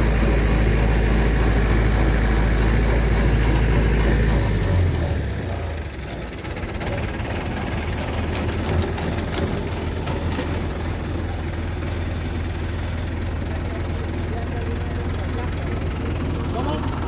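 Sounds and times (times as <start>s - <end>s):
tractor engine humming: 0.0s - 17.0s
machinery clicks and knocks: 0.2s - 12.0s.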